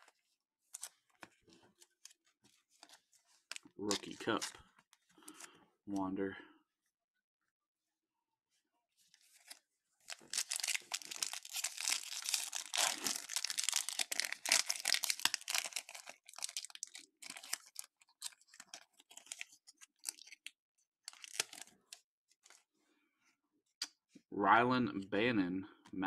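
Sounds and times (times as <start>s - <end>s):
cards rustling: 0.0s - 5.6s, 9.2s - 20.5s
foil wrapper tearing and crinkling: 9.4s - 20.5s, 21.1s - 21.7s.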